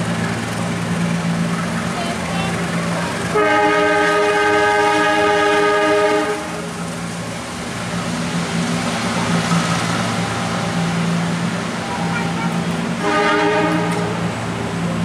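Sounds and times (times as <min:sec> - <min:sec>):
locomotive engine hum: 0:00.0 - 0:15.0
train rumbling: 0:00.0 - 0:15.0
diesel locomotive horn blast: 0:03.2 - 0:06.8, 0:12.0 - 0:14.4.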